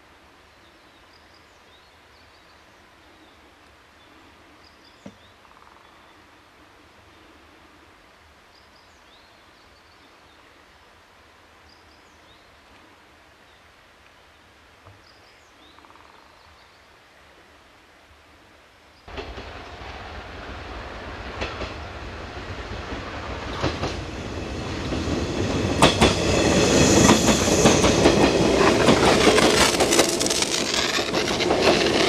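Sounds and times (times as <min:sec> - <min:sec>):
steady hiss: 0:16.7 - 0:32.0.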